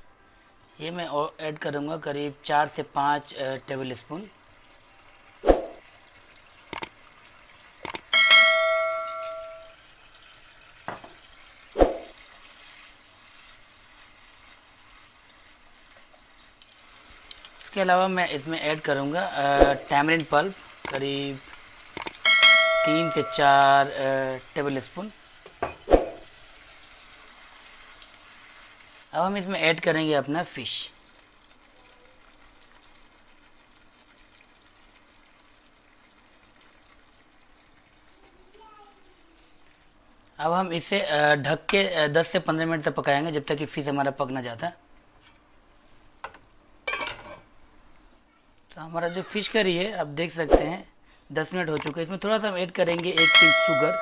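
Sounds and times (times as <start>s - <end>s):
faint steady sizzle: 0.0s - 53.6s
gravy simmering in a pan: 3.0s - 7.8s, 9.7s - 22.0s, 26.2s - 41.3s, 42.4s - 48.3s
spatula stirring curry in pan: 12.2s - 17.8s, 26.3s - 29.1s.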